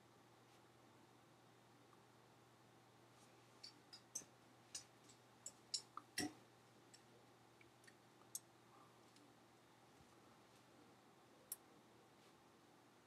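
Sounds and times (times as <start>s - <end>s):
faint sharp clicks and ticks: 3.6s - 9.3s.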